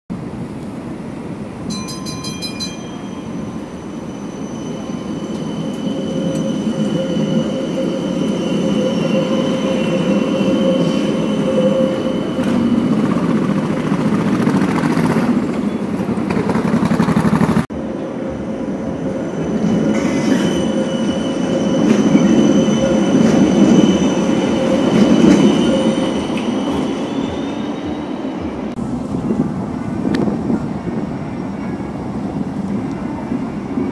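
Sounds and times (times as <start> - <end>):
tram wheels rumbling on rails: 0.1 - 33.9
tram wheels squealing: 1.7 - 28.7.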